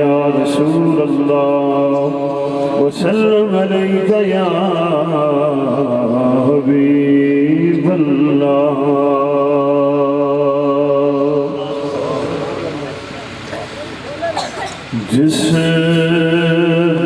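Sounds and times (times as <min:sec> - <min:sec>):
man chanting: 0:00.0 - 0:13.3, 0:14.9 - 0:17.0.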